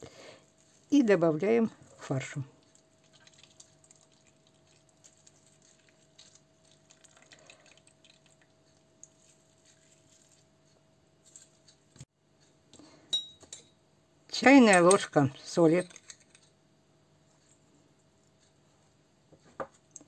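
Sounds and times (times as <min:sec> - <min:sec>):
faint steady hum: 0:00.0 - 0:20.0
hands squeezing wet pulp: 0:02.0 - 0:10.5.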